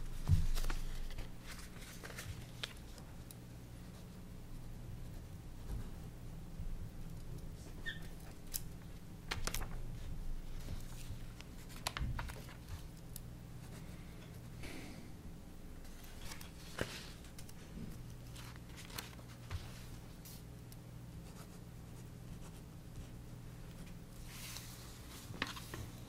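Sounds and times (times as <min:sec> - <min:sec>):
papers rustling: 0:00.0 - 0:03.1, 0:09.3 - 0:13.0, 0:15.8 - 0:20.5, 0:23.7 - 0:26.0
steady low hum: 0:00.0 - 0:26.0.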